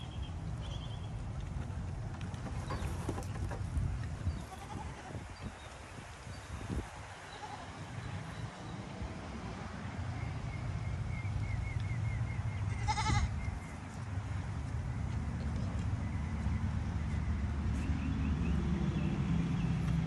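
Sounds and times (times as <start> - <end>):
goat bleating: 4.5 - 5.1, 12.7 - 13.3.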